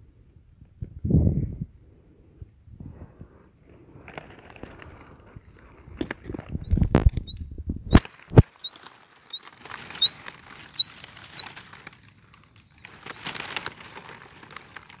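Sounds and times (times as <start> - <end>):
high squeaky chirps: 4.9 - 11.7, 12.7 - 14.1
birds flapping in grass: 8.0 - 15.0.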